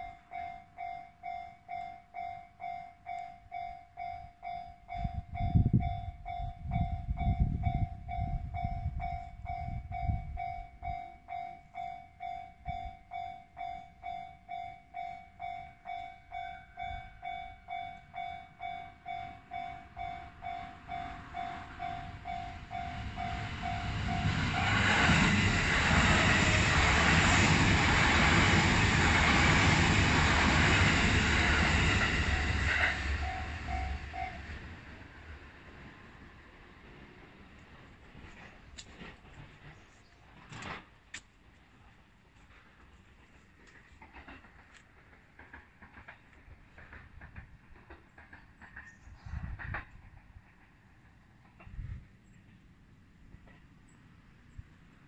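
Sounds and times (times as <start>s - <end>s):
level crossing bell dinging: 0.0s - 24.4s
approaching train noise: 0.0s - 55.0s.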